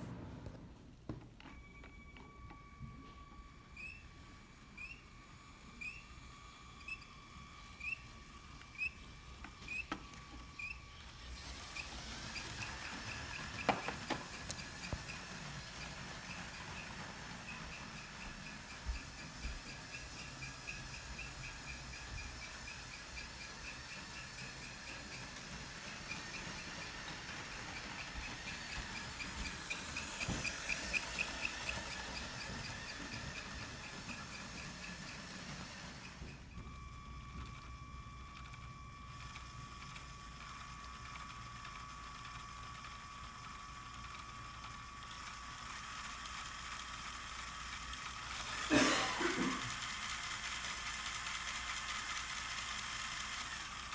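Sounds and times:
toy train wheels clicking: 3.2s - 53.9s.

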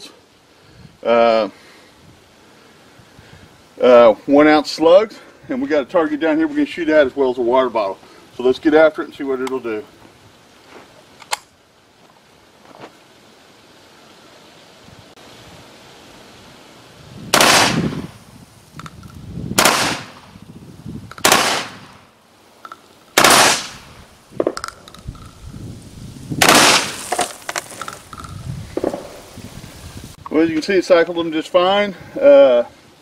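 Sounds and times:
shotgun shots with echo: 17.3s - 18.0s, 19.6s - 20.3s, 21.2s - 22.0s, 23.2s - 24.5s, 26.4s - 27.2s.

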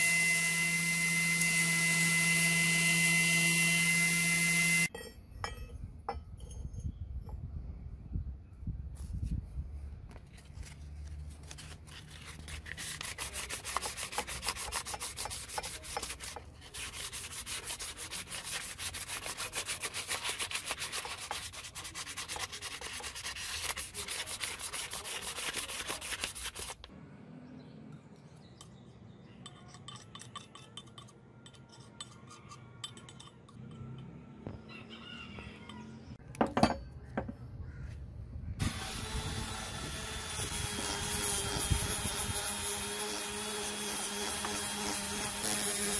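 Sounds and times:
small rotary tool running: 0.0s - 4.9s, 38.6s - 45.9s
sandpaper rubbing on brass: 11.4s - 26.9s, 38.9s - 45.9s.

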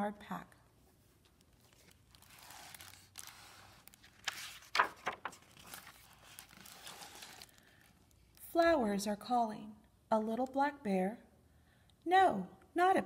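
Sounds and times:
book pages rustling: 0.9s - 8.4s
book cover and pages flapping: 1.1s - 8.4s.

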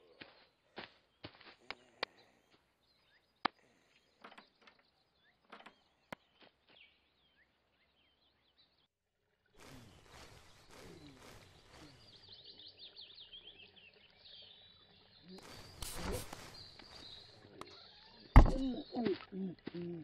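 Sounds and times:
faint birdsong: 0.0s - 20.0s
cartoon footsteps: 18.4s - 19.8s.

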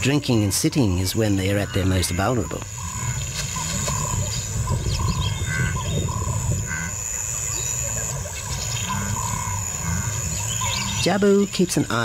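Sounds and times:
steady low rumble: 2.4s - 11.1s.

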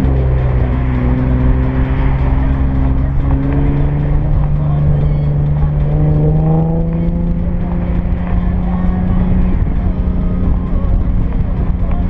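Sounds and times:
car exhaust drone: 0.0s - 12.0s.

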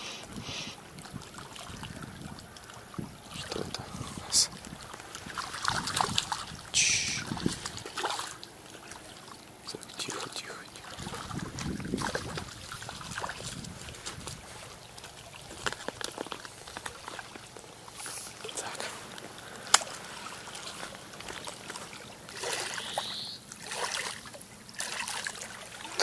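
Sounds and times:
water splashing and trickling: 0.0s - 26.0s
fishing tackle clicks and knocks: 15.6s - 16.9s.

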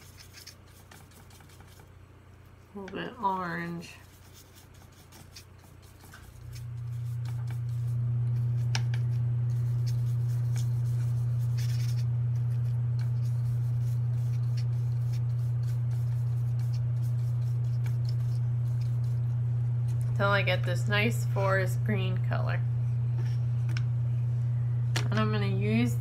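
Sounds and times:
paintbrush ticks and scrapes: 0.0s - 1.9s, 2.5s - 20.9s
steady low hum: 0.0s - 26.0s.

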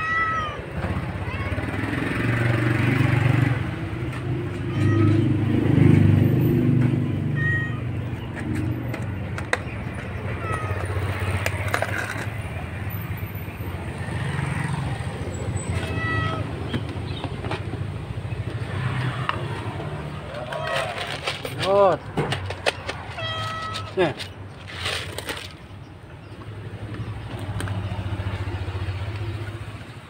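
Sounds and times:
low rumble of traffic: 0.0s - 30.0s
cat meowing softly: 4.5s - 5.3s, 7.3s - 7.9s, 15.7s - 16.5s.

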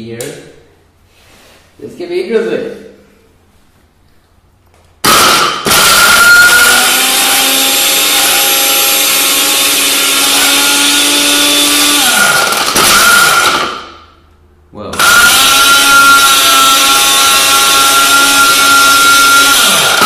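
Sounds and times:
blender motor whine: 5.0s - 13.8s, 15.0s - 20.0s.

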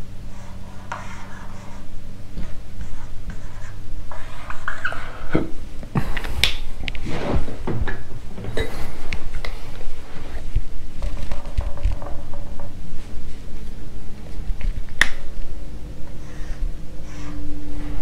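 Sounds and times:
marker squeaking on whiteboard: 2.8s - 5.4s.

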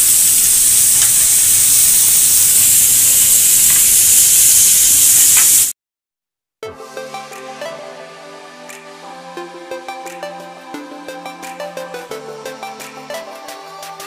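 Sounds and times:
chicken sizzling in oil: 0.0s - 5.7s
music: 6.6s - 14.0s.

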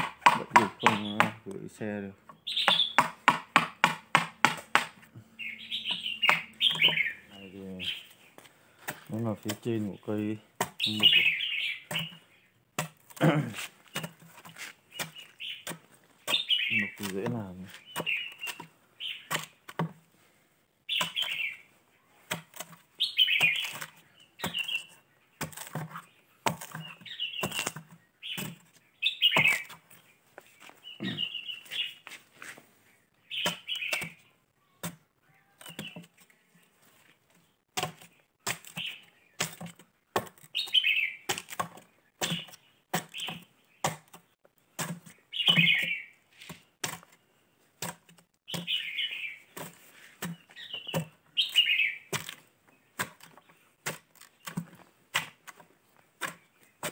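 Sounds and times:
iron bar knocking wood: 0.0s - 1.4s
bird calling: 0.0s - 19.6s, 20.9s - 22.2s, 22.9s - 36.7s, 37.5s - 39.7s, 40.4s - 44.4s, 45.0s - 47.2s, 48.4s - 54.6s.

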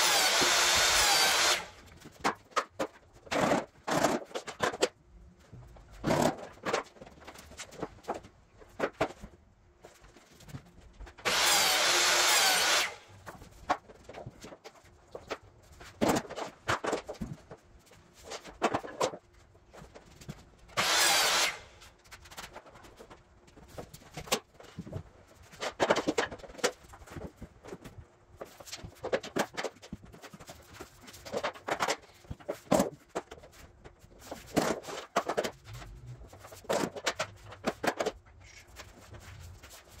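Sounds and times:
power tool bursts: 0.0s - 1.8s, 11.3s - 13.1s, 20.8s - 21.8s.

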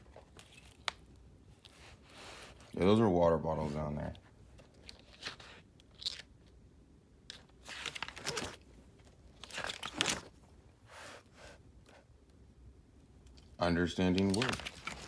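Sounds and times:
paper pages turning: 0.0s - 1.0s, 7.3s - 8.6s, 9.4s - 10.3s, 14.0s - 15.0s.

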